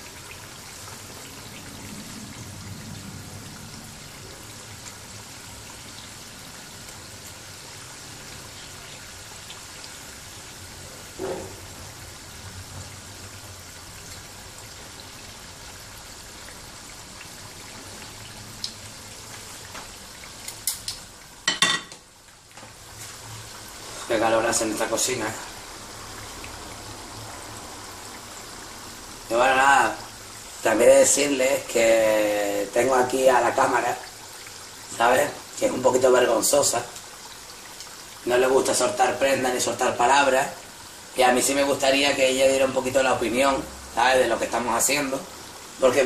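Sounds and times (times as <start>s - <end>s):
oil sizzling and crackling: 0.0s - 46.0s
metal spoon knocking pan: 21.5s - 22.0s.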